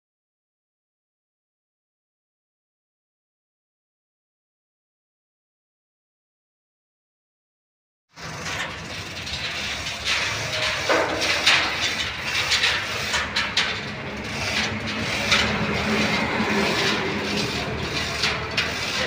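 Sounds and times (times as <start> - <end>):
metal knocks and clanks: 8.2 - 19.0
low engine hum: 13.3 - 19.0.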